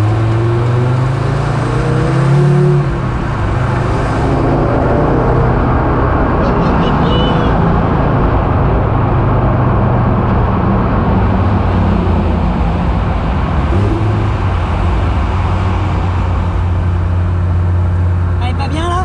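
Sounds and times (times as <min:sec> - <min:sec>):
car engine running loudly: 0:00.0 - 0:19.0
tyre and road noise: 0:00.0 - 0:19.0.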